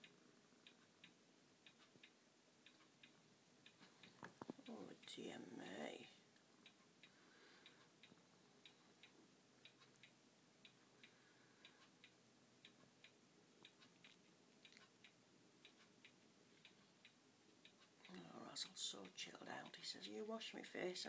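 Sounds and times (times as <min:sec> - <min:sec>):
clock ticking: 0:00.0 - 0:21.0.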